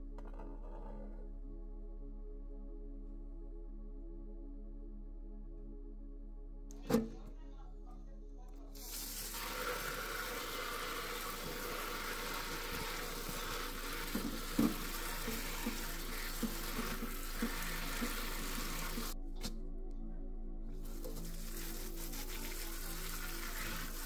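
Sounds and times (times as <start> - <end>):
tap water running into colander: 8.8 - 19.2, 20.8 - 24.0.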